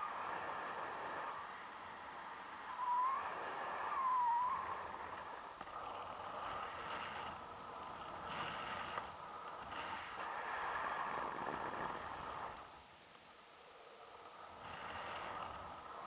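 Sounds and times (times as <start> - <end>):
short wavering whistle: 2.7 - 4.8.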